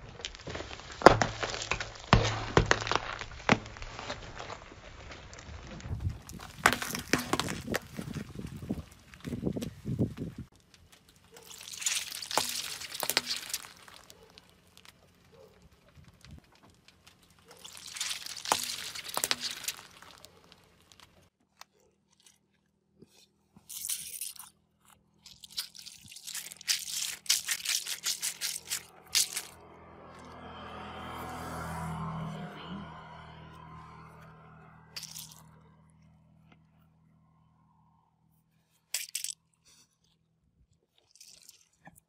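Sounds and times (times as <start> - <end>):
tyre crushing bursting stress balls: 0.0 - 21.3.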